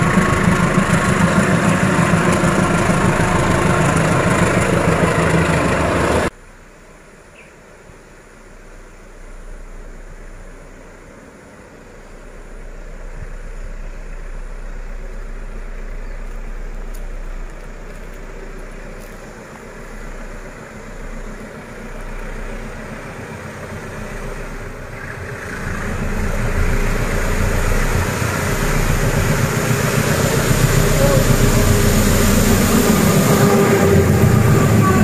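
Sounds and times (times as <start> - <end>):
diesel locomotive engine running: 0.0 - 6.7, 8.1 - 35.0.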